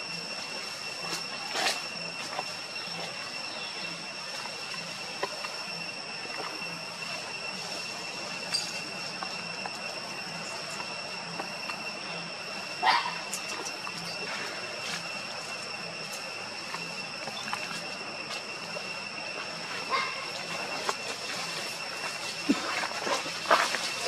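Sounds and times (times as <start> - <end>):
cicadas droning: 0.0 - 24.0.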